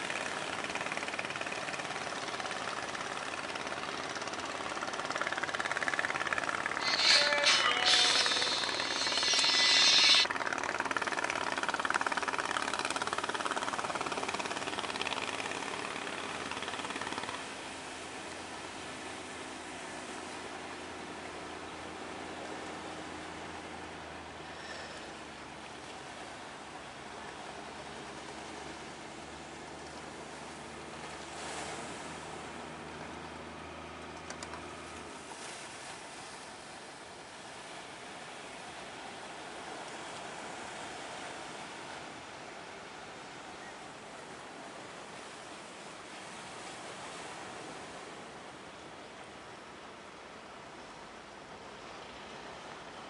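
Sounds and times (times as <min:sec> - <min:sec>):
boat engine chugging: 0:00.0 - 0:18.9
boat engine humming: 0:00.0 - 0:53.0
waves and surf: 0:00.0 - 0:53.0.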